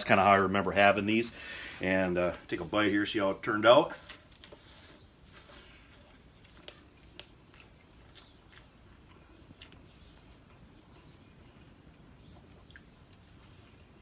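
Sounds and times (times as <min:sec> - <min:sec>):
low steady hum: 0:00.0 - 0:14.0
man chewing food: 0:04.3 - 0:14.0.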